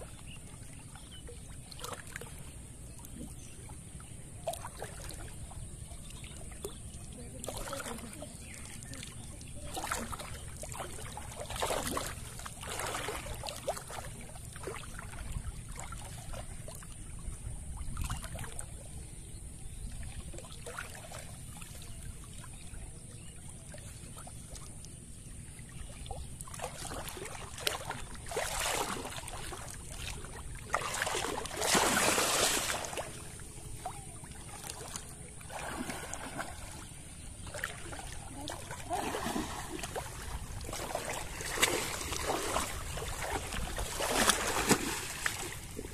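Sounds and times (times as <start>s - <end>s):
water sloshing and splashing: 0.0s - 45.9s.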